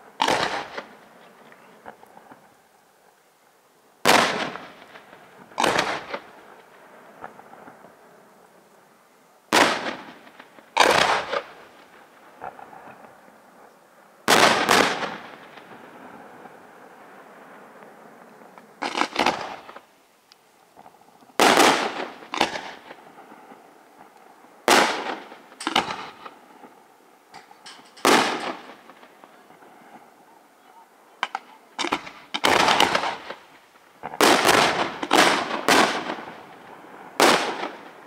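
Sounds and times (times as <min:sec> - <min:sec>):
firework shells bursting: 0:00.2 - 0:01.0, 0:04.1 - 0:06.4, 0:09.5 - 0:12.6, 0:14.3 - 0:15.8, 0:18.8 - 0:19.9, 0:21.4 - 0:23.0, 0:24.0 - 0:26.5, 0:27.3 - 0:29.3, 0:31.2 - 0:38.0.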